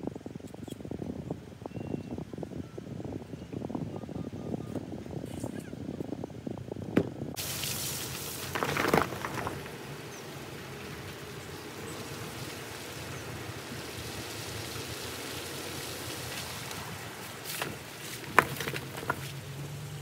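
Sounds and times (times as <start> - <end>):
rain hissing: 7.4 - 18.3.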